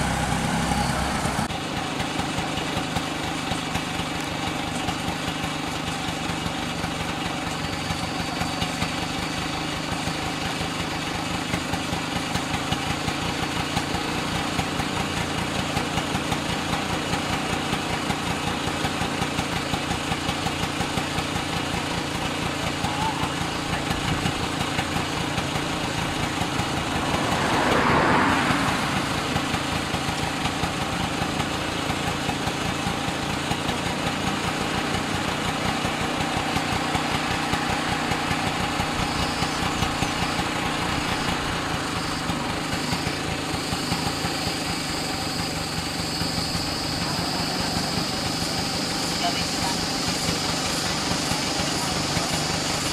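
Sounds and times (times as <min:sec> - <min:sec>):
vehicle passing by: 0:00.0 - 0:01.5, 0:24.8 - 0:31.3
vehicle engine idling: 0:00.0 - 0:52.9.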